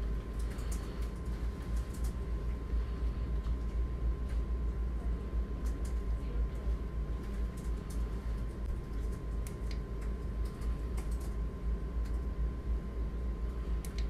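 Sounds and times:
faint constant whine: 0.0s - 14.0s
light clicks: 13.8s - 14.0s.

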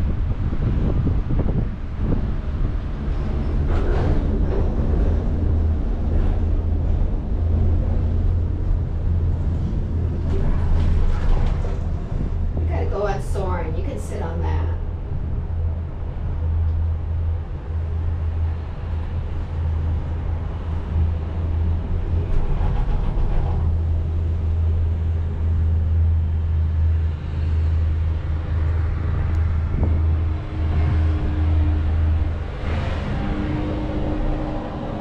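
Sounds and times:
gondola cabin running rumble: 0.0s - 35.0s
steady hum: 4.4s - 22.3s.

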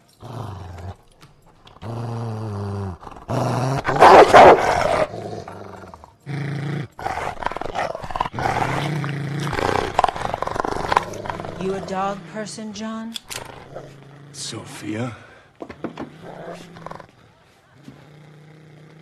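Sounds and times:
dogs growling: 0.0s - 19.0s
dogs barking loudly: 3.8s - 5.5s.

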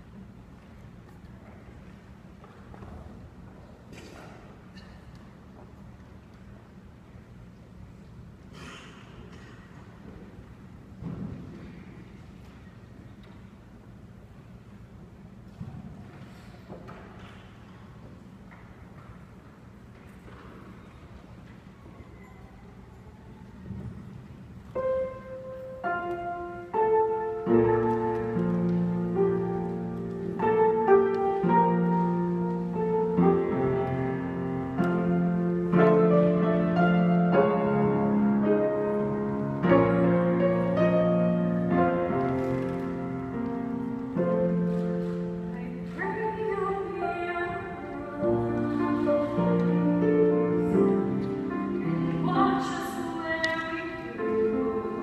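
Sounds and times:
slow piano melody: 23.0s - 55.0s.

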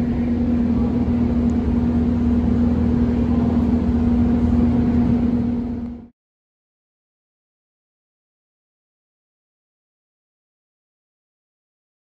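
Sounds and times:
metro train rumbling: 0.0s - 6.1s.

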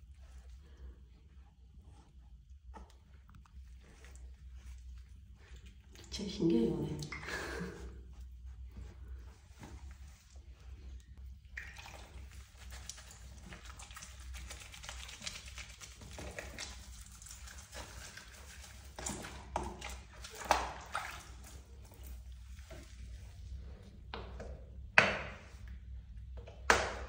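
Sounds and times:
water sloshing in plastic tub: 11.2s - 27.0s.

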